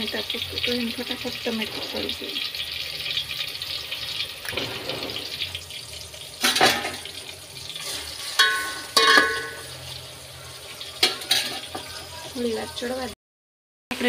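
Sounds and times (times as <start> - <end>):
tomatoes sizzling in oil: 0.0 - 13.2
metal ladle knocking on pot: 8.4 - 9.7.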